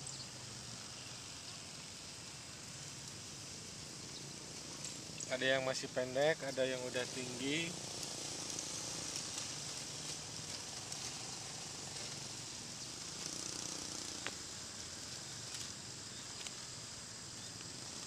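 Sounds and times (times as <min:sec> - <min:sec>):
steady high hiss: 0:00.0 - 0:18.0.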